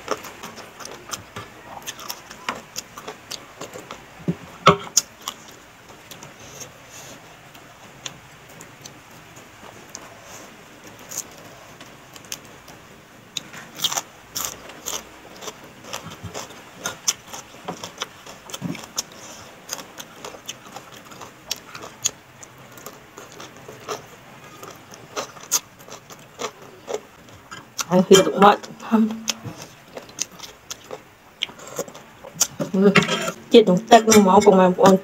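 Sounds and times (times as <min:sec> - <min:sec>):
person chewing crunchy food: 0:00.0 - 0:04.1, 0:13.3 - 0:33.4.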